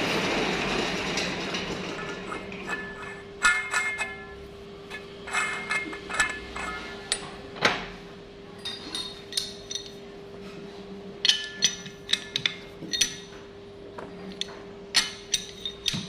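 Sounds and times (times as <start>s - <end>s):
steady hum: 0.0s - 16.0s
metal tools clinking: 2.0s - 7.3s, 8.6s - 10.0s, 11.2s - 13.4s, 14.3s - 16.0s.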